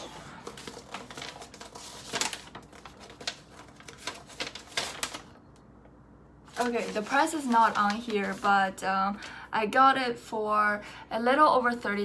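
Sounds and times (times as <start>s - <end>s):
paper rustling and crackling: 0.0s - 5.4s, 6.5s - 9.2s.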